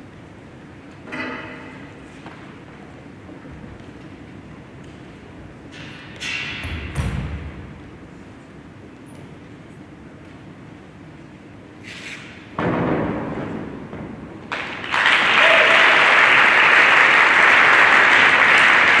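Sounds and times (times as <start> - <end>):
audience applause: 14.5 - 19.0.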